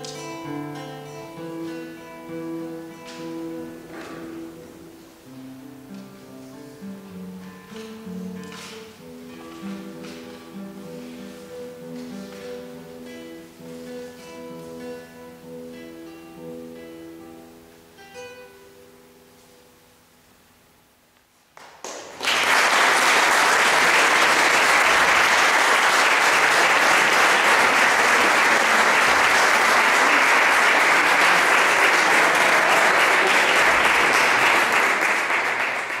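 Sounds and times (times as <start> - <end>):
classical guitar notes ringing: 0.0 - 19.8
audience applauding: 21.6 - 36.0.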